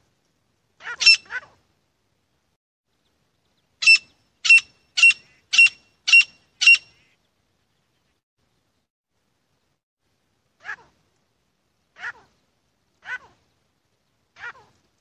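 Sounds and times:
francolin calling: 3.8s - 7.2s.

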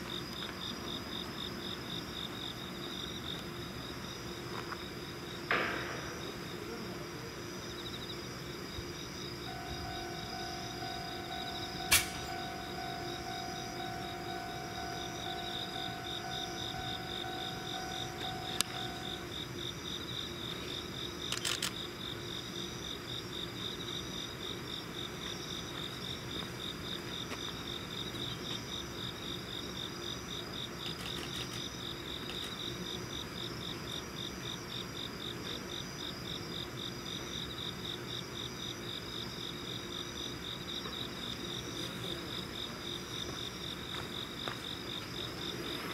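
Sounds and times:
crickets chirping: 0.0s - 45.9s
steady hum: 0.9s - 20.5s
sharp click: 11.8s - 12.4s.

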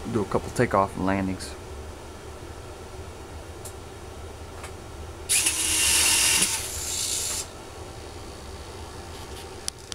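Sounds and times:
small geared motors whirring: 5.3s - 7.5s.

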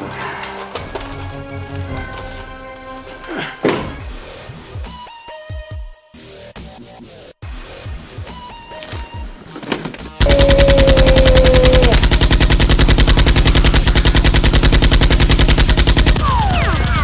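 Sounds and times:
automatic gunfire: 10.2s - 17.0s.

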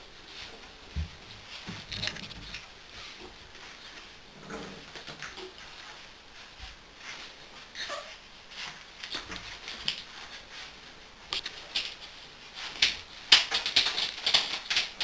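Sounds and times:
puppies scuffling: 0.0s - 15.0s
puppy squeak: 7.8s - 8.2s.

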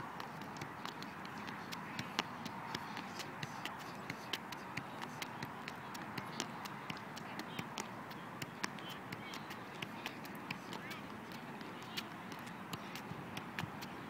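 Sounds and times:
foot tapping soccer ball: 0.1s - 14.0s.

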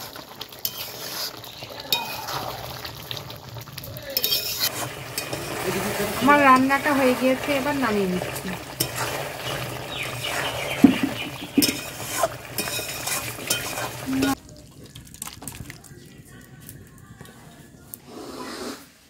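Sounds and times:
sizzling: 0.0s - 19.0s
metal ladle stirring curry: 0.2s - 3.3s, 4.1s - 7.6s, 8.2s - 15.6s
ladle knocking against pot: 10.8s - 12.0s.

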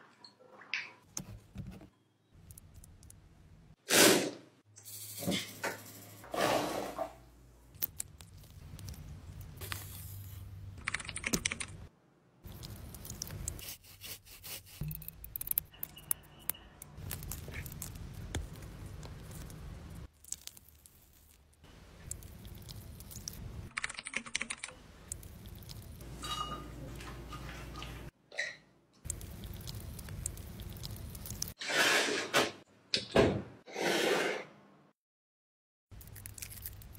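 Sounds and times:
bean skins peeling clicks: 14.8s - 21.4s.

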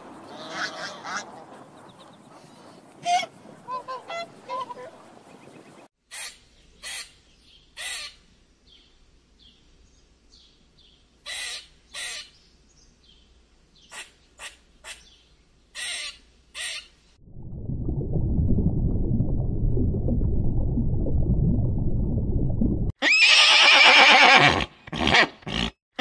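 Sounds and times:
swans calling: 2.3s - 7.1s
squirrel harsh calls: 6.1s - 7.2s, 7.8s - 8.2s, 11.2s - 12.4s, 13.8s - 17.0s.

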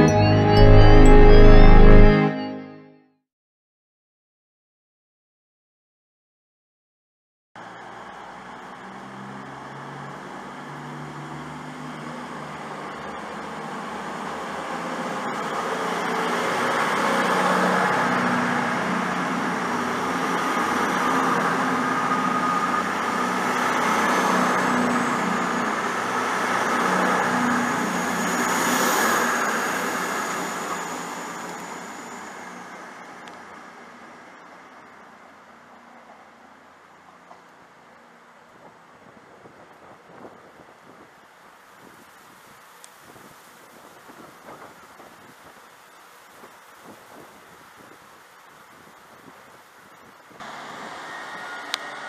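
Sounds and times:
diesel train departing: 0.0s - 2.8s, 7.6s - 37.1s, 50.4s - 52.0s
high whine: 0.0s - 2.9s.

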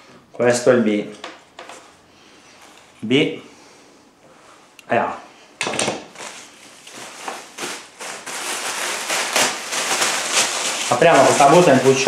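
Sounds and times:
plastic bag crinkling: 6.0s - 12.0s.

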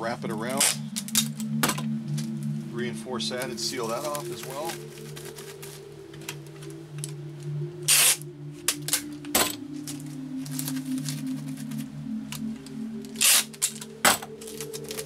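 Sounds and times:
plastic wrap crackling: 3.6s - 6.7s, 9.9s - 11.9s, 13.1s - 15.0s.

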